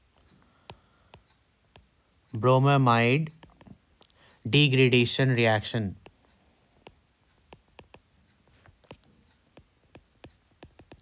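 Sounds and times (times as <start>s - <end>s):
stylus tapping on tablet screen: 0.0s - 2.0s, 3.4s - 4.2s, 6.0s - 11.0s.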